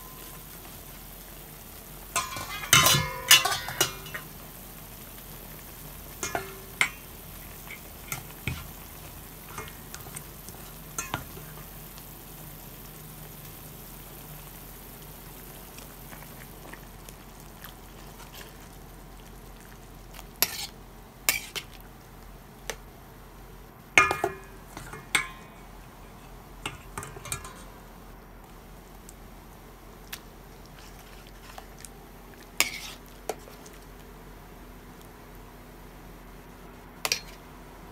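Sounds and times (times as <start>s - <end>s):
stew simmering with hiss: 0.0s - 37.9s
metal spoon clinking against pot: 2.2s - 4.3s, 24.0s - 25.5s, 26.7s - 27.7s.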